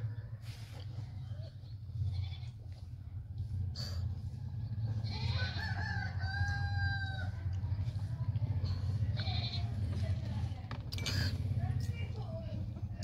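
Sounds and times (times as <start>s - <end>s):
steady low hum: 0.0s - 13.0s
rooster crowing: 5.1s - 7.4s.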